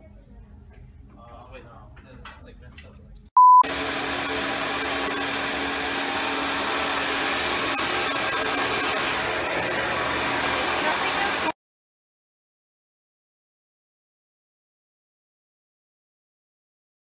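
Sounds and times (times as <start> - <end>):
drone propellers whirring: 3.7 - 11.5.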